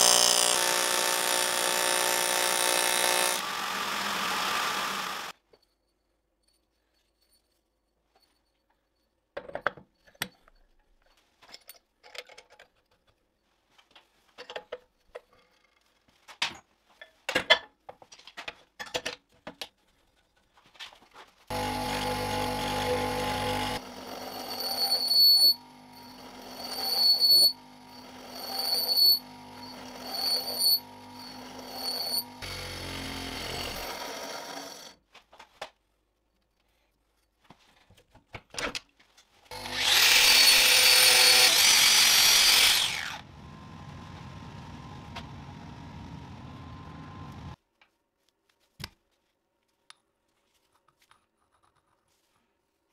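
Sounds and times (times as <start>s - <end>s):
bench grinder running with ringing: 0.0s - 5.3s, 21.5s - 35.0s, 39.5s - 47.6s.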